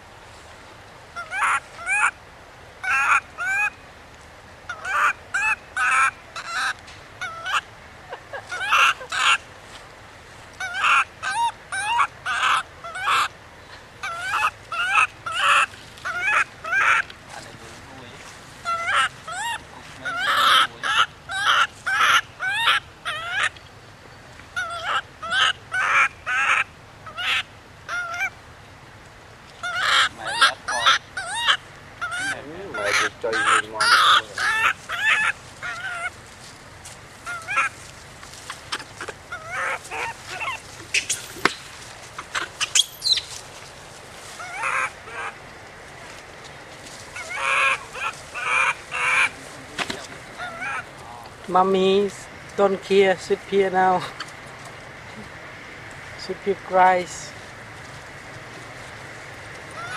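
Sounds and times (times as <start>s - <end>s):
baby monkey crying: 1.2s - 2.2s, 2.8s - 3.8s, 4.7s - 7.7s, 8.3s - 9.4s, 10.6s - 13.3s, 14.0s - 17.1s, 18.6s - 23.6s, 24.6s - 28.3s, 29.6s - 36.2s, 37.2s - 37.8s, 38.4s - 41.6s, 42.2s - 43.4s, 44.4s - 45.4s, 47.1s - 51.0s.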